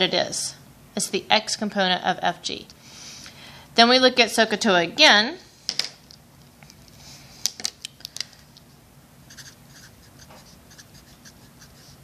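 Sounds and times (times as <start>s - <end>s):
marker scratching on paper: 9.3s - 12.0s.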